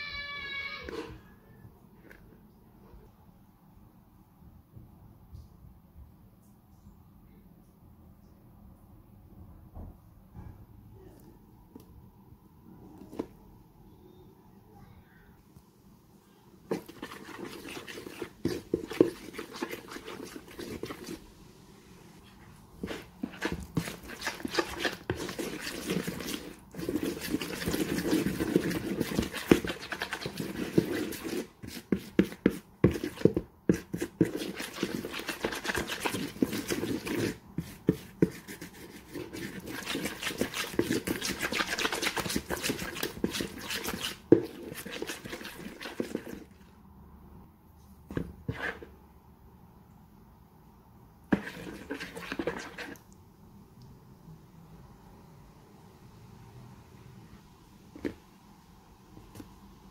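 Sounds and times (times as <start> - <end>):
spoon stirring thick paste: 0.7 - 1.3, 12.8 - 13.4, 16.5 - 46.8, 47.8 - 49.0, 51.3 - 53.2.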